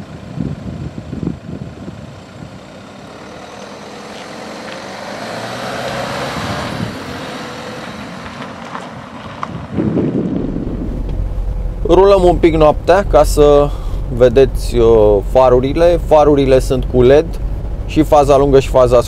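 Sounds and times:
road vehicle passing: 2.0s - 19.0s.

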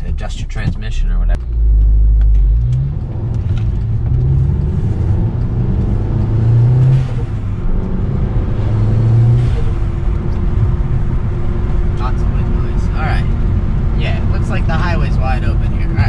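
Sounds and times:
loud tire noise: 0.0s - 16.0s
turbocharged car engine accelerating: 0.0s - 16.0s.

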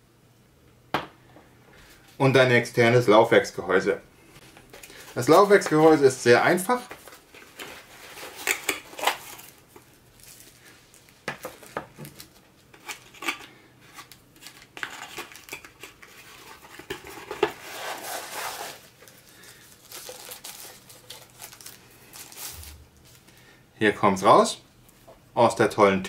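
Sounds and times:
plastic bag crinkling: 4.7s - 12.4s, 14.0s - 23.4s.

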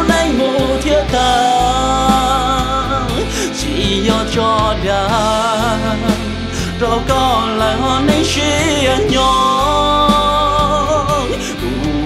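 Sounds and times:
pop song with steady beat: 0.0s - 12.0s.

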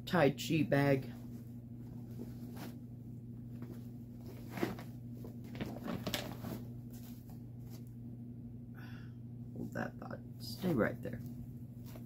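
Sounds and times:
steady low hum: 0.0s - 12.0s
bags and paper rustling: 3.6s - 7.9s.

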